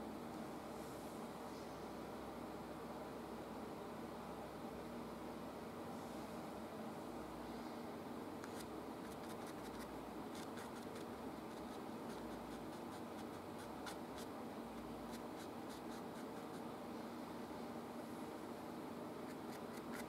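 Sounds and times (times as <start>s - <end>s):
steady low hum: 0.0s - 20.0s
paintbrush scratching on canvas: 8.5s - 14.3s, 15.0s - 16.7s, 19.2s - 20.0s.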